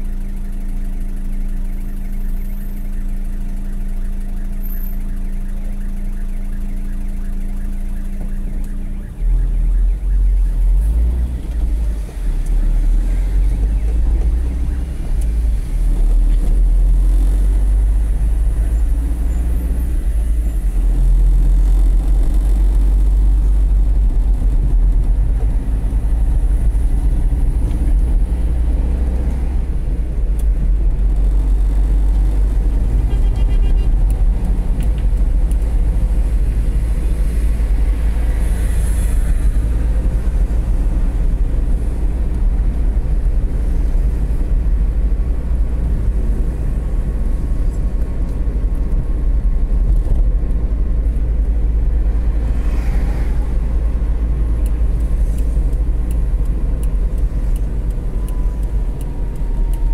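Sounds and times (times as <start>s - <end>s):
car engine idling: 0.0s - 9.1s
road noise: 0.0s - 59.9s.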